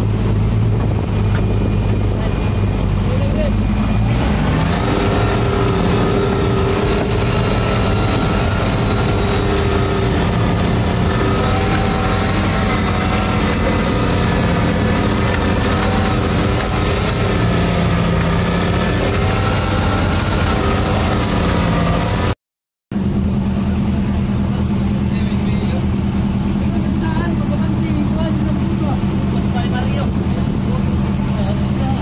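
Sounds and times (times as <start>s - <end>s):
winch hauling rope: 0.0s - 22.4s
boat engine running: 0.0s - 32.0s.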